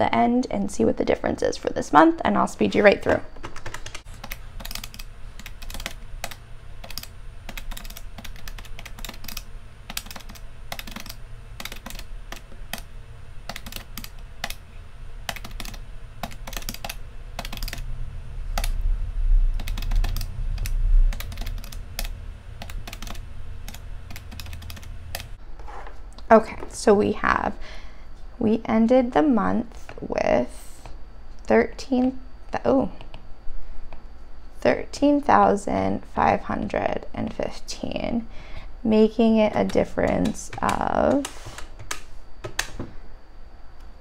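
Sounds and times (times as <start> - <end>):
calculator keys tapping: 3.0 - 14.6, 15.2 - 17.8, 19.6 - 25.3, 39.4 - 42.8
low rumble: 14.2 - 25.4.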